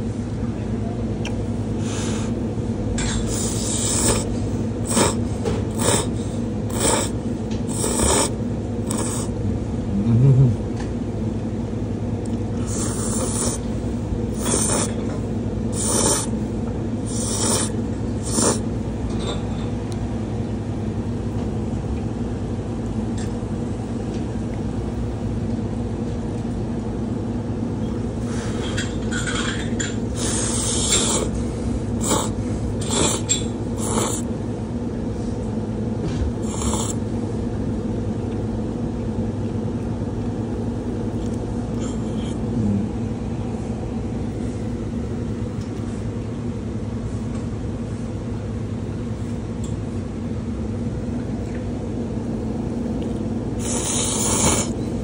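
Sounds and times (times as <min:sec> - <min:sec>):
low machine hum: 0:00.0 - 0:55.0
noodles being slurped: 0:03.2 - 0:04.3, 0:04.9 - 0:06.1, 0:06.7 - 0:08.3, 0:08.9 - 0:09.3, 0:12.6 - 0:13.6, 0:14.4 - 0:15.0, 0:15.8 - 0:16.3, 0:17.1 - 0:18.6, 0:30.2 - 0:31.4, 0:32.0 - 0:34.2, 0:53.6 - 0:54.7.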